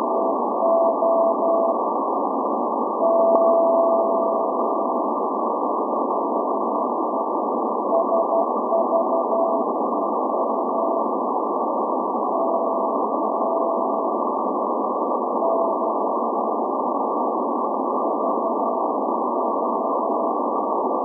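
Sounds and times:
radio static: 0:00.0 - 0:21.0
morse code tone: 0:00.6 - 0:01.8, 0:03.0 - 0:04.5, 0:07.9 - 0:09.7.

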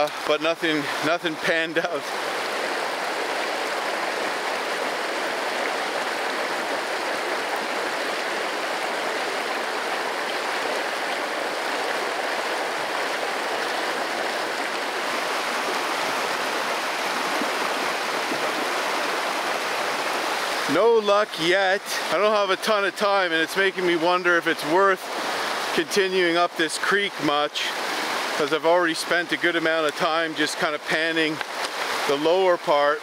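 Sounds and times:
creek flowing over rocks: 0:00.0 - 0:33.0.

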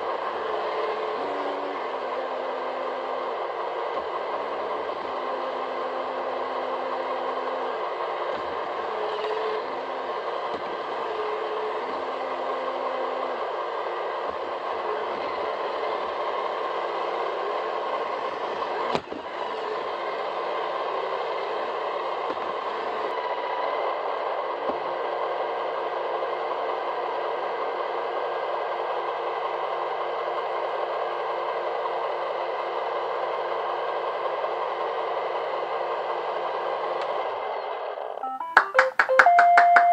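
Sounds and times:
robot vacuum whirring: 0:00.4 - 0:17.6.

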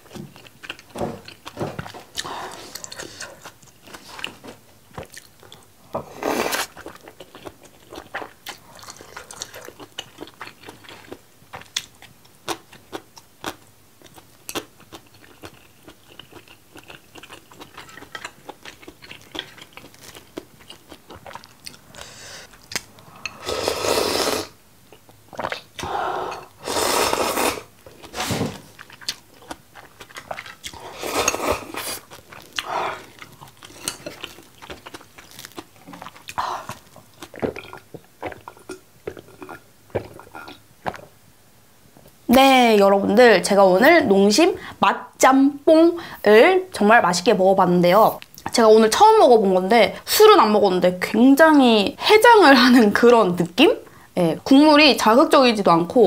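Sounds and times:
wet chewing: 0:00.0 - 0:05.7, 0:06.4 - 0:23.4, 0:24.9 - 0:41.1
slurping noodles: 0:23.2 - 0:24.6, 0:25.4 - 0:28.5, 0:30.7 - 0:33.1.

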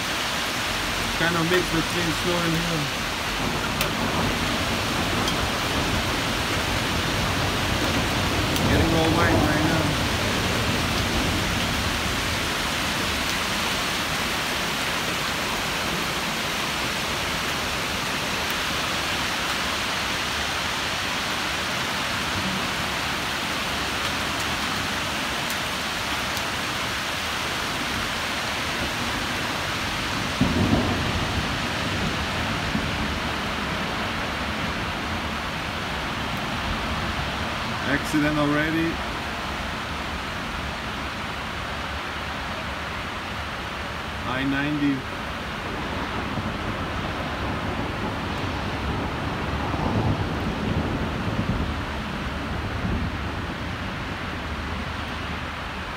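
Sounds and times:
rain and hail falling: 0:00.0 - 0:55.9.

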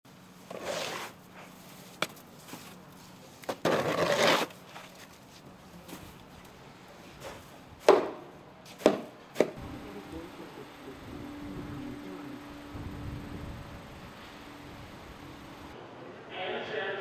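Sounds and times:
snow shovel scraping concrete: 0:00.4 - 0:01.6, 0:03.5 - 0:05.0.

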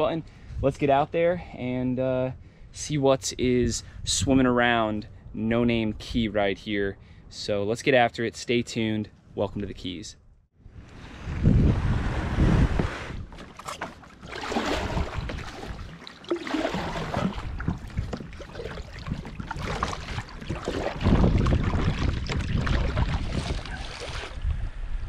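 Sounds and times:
wind buffeting microphone: 0:10.6 - 0:13.4, 0:14.5 - 0:16.0, 0:16.7 - 0:25.0
paddle splashing in water: 0:12.8 - 0:24.5.

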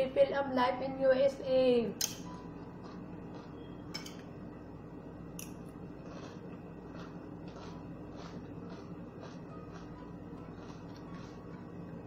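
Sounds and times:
faint steady hum: 0:00.0 - 0:12.0
soft chewing: 0:02.6 - 0:03.9, 0:05.4 - 0:12.0
spoon clicking on ceramic plate: 0:03.9 - 0:04.2.

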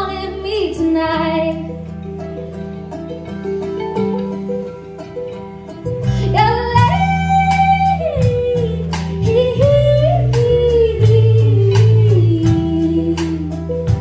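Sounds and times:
drums: 0:00.0 - 0:14.0
plucked strings: 0:00.0 - 0:14.0
bass line: 0:05.7 - 0:14.0
woman singing long notes: 0:06.3 - 0:13.8.

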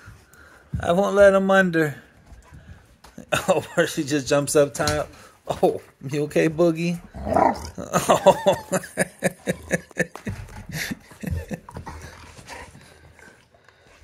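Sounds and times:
person laughing: 0:07.7 - 0:12.0
dogs knocking and scuffling: 0:08.1 - 0:13.1.

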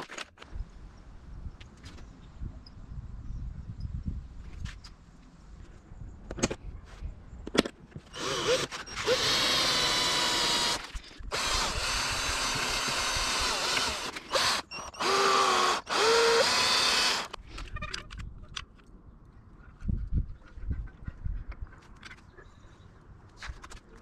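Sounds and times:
power drill boring plywood: 0:08.1 - 0:17.4.

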